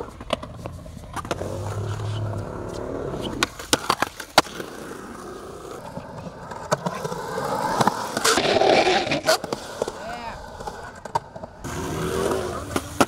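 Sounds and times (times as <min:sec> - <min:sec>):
skateboard clacking on concrete: 0:00.0 - 0:13.0
skateboard wheels rolling on concrete: 0:00.0 - 0:13.0.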